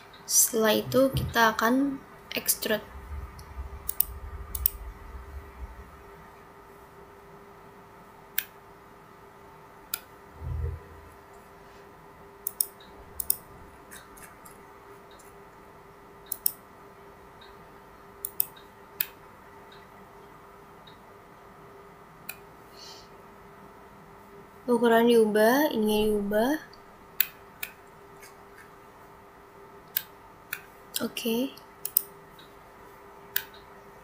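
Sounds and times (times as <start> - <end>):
faint steady hum: 0.0 - 34.0
short low thump: 2.7 - 6.4, 10.4 - 11.2
computer mouse clicks: 12.4 - 15.3, 16.3 - 16.6, 18.2 - 19.9, 27.2 - 28.7, 29.9 - 30.7, 31.8 - 32.5, 33.3 - 33.7.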